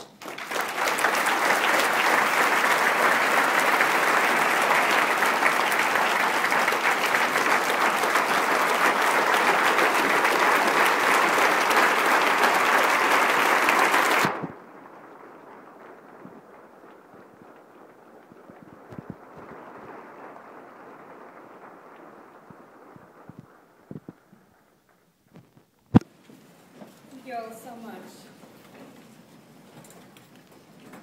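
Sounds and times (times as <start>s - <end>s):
audience applauding: 0.0s - 24.2s.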